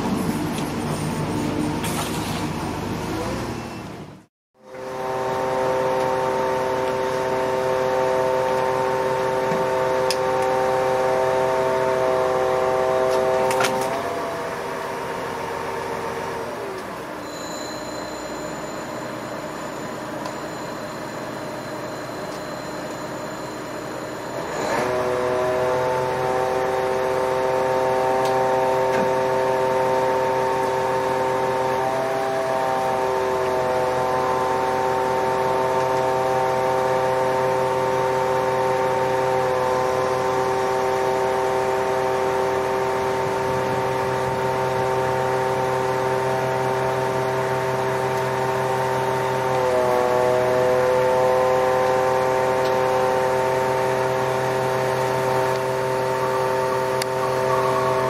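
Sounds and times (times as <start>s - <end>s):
truck engine and hydraulics whining: 0.0s - 58.0s
faint high whistling tones: 17.2s - 24.7s, 55.8s - 58.0s.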